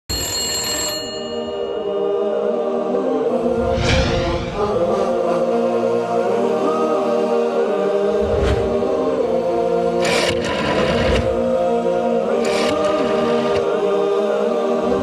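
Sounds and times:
chant-like vocal music: 1.4s - 15.0s
swishing noise effects: 3.5s - 5.6s.

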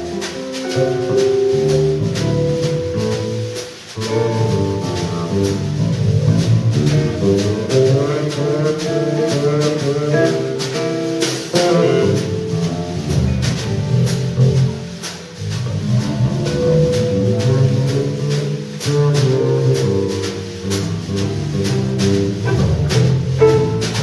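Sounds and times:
walking bass: 0.0s - 24.0s.

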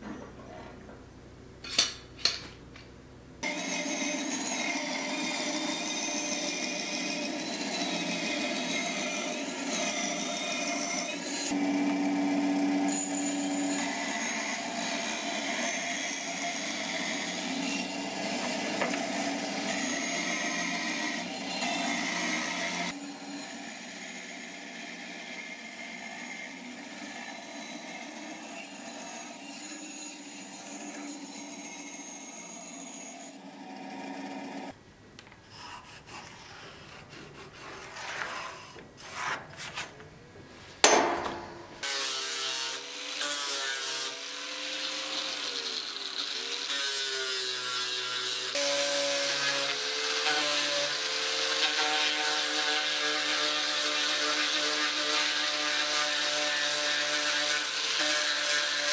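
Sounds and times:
bandsaw cutting wood: 3.4s - 34.7s, 35.5s - 39.4s, 41.4s - 58.9s
sharp knocks: 40.8s - 41.8s.

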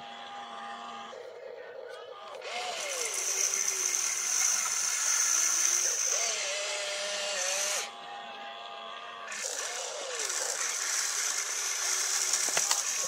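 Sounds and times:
toy electric motors whining: 2.2s - 8.0s, 8.6s - 13.0s.

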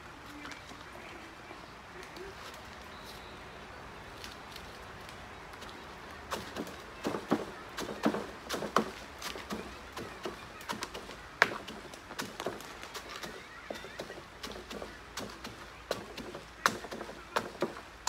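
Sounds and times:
stick knocking and scraping in soil: 5.1s - 18.0s.

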